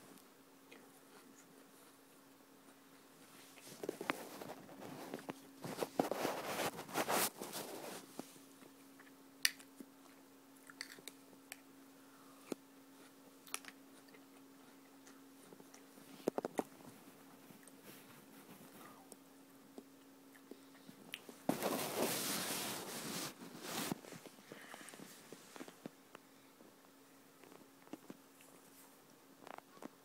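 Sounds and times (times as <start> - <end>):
faint steady hum: 0.0 - 30.0
person crunching and chewing: 10.6 - 11.1.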